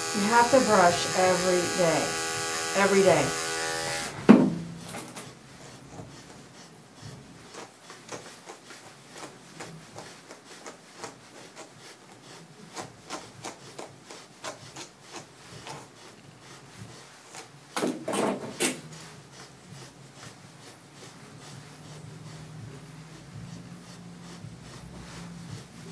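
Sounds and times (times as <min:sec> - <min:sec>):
brush scratching through dog fur: 0:00.0 - 0:04.1, 0:05.2 - 0:17.8, 0:18.8 - 0:25.9
knocks: 0:04.2 - 0:05.1, 0:17.8 - 0:18.8.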